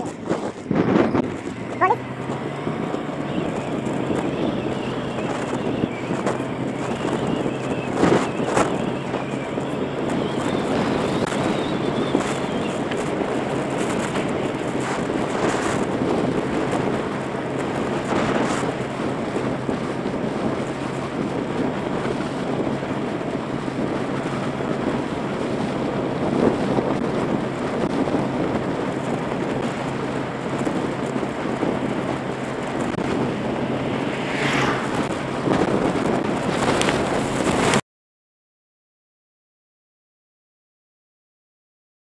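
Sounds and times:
motorbike engine running: 0.0s - 37.7s
wind rushing over microphone: 0.0s - 37.8s
falling whoosh: 32.7s - 36.1s.

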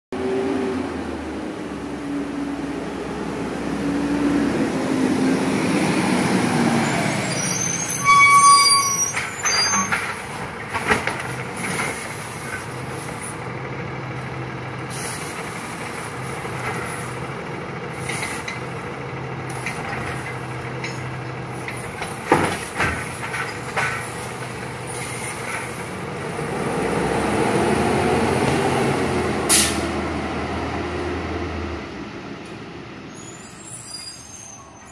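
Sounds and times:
garbage truck engine: 0.2s - 34.9s
brakes squealing and hissing: 6.6s - 13.4s, 14.8s - 17.3s, 17.9s - 18.8s, 19.5s - 26.5s, 29.5s - 30.0s, 33.0s - 34.9s
cart banging down: 8.0s - 13.1s, 19.5s - 25.8s
hydraulic arm humming and clanking: 19.4s - 25.9s.

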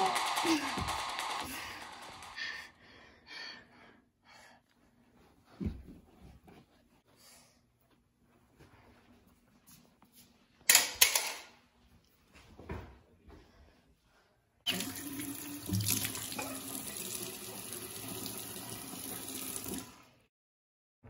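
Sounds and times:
tap running water: 14.7s - 20.2s.

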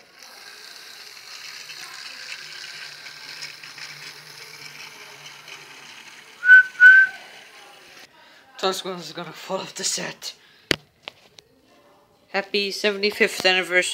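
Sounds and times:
toy train motor whirring: 0.0s - 8.1s
high-pitched toy train toots: 6.4s - 7.5s.

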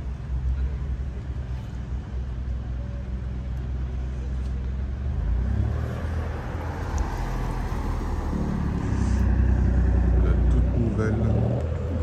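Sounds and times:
car engine low drone: 0.0s - 12.0s.

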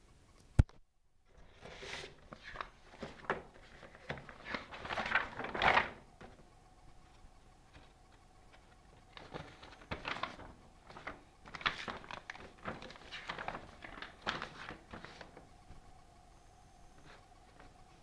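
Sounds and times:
paper rustling and crinkling: 1.3s - 6.5s, 7.1s - 15.9s.

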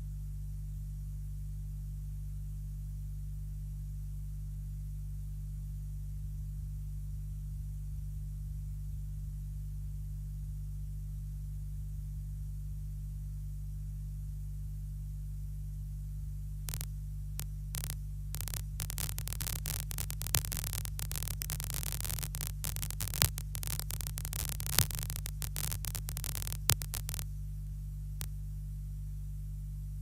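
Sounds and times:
low electrical hum: 0.0s - 30.0s
sharp crackling clicks and pops: 16.7s - 28.3s.

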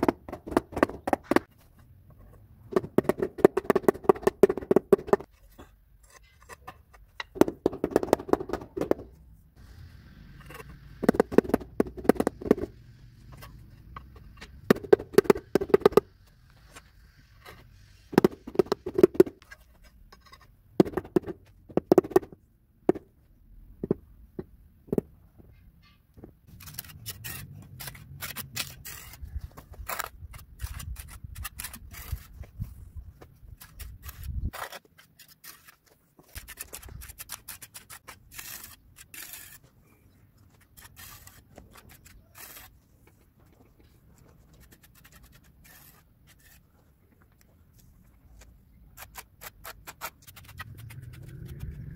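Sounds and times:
rubber mallet tapping tiles: 11.0s - 12.7s
trowel scraping mortar: 26.5s - 32.9s, 33.5s - 39.8s, 40.5s - 43.2s, 43.8s - 46.9s, 48.9s - 51.9s.

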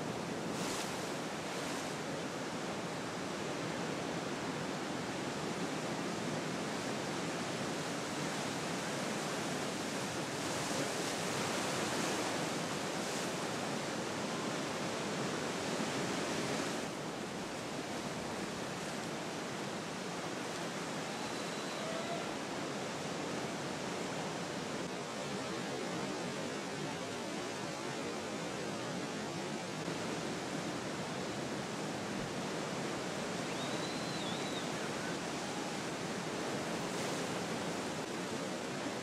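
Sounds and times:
ocean surf rushing: 0.0s - 39.0s.

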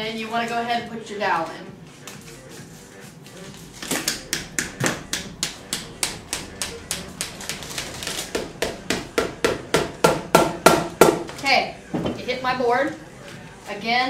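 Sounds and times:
hammer tapping wooden dowel: 3.8s - 11.3s.

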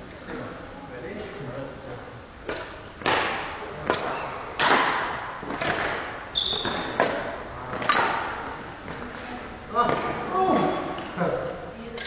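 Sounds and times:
rackets hitting shuttlecock: 2.4s - 11.1s
brief high squeak: 6.3s - 7.0s.

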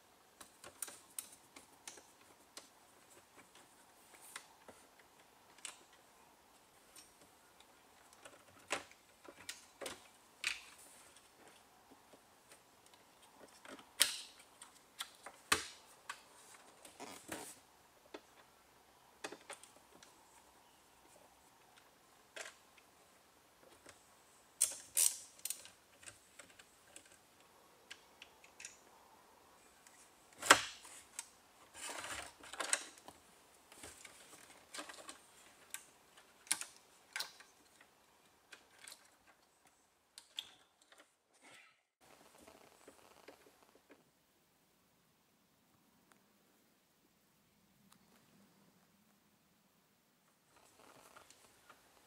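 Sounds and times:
plastic and metal clicks and rattles: 0.4s - 6.1s, 19.2s - 20.1s, 24.6s - 28.9s, 29.8s - 41.2s.

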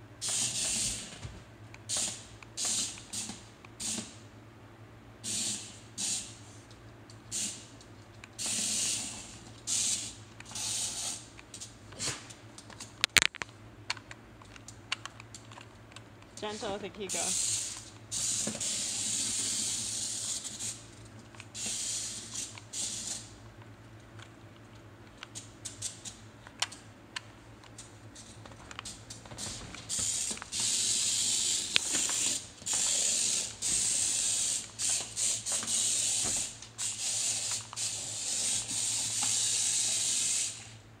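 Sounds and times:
toy car motor whirring: 8.4s - 11.2s, 16.4s - 20.8s, 29.9s - 40.8s.

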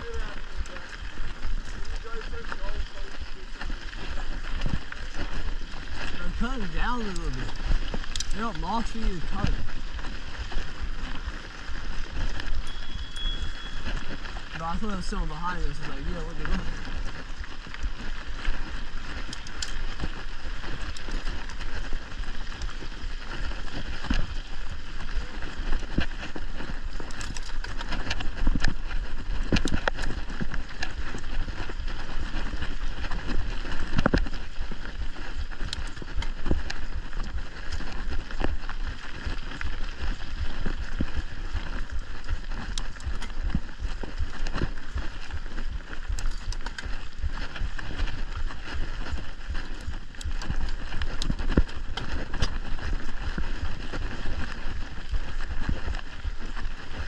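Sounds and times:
bike rattling over bumps: 0.0s - 57.0s
bike tyre rumble on dirt trail: 0.0s - 57.0s.

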